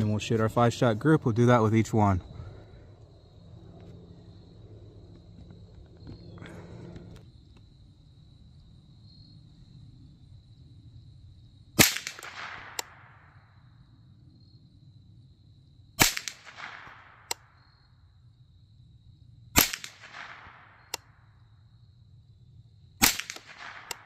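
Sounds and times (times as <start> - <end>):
sharp rifle click: 11.8 - 13.1, 16.0 - 17.5, 19.6 - 21.1, 23.0 - 24.0
rifle shots with echo: 11.8 - 13.3, 16.0 - 17.5, 19.6 - 21.0, 23.0 - 24.0.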